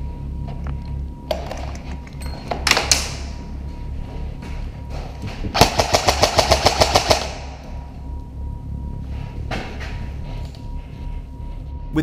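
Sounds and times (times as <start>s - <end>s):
airsoft rifle full-auto burst: 5.6s - 7.4s.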